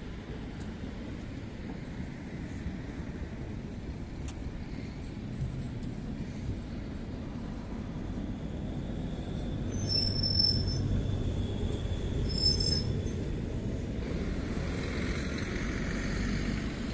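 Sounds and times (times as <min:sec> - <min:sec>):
tram passing with low rumble: 0:00.0 - 0:16.9
wheels squealing on rails: 0:06.3 - 0:16.9.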